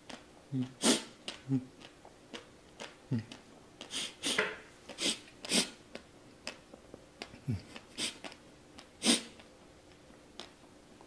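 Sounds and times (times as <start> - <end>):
mouth clicks: 0.0 - 9.5
man blowing sharp breaths: 7.9 - 8.3.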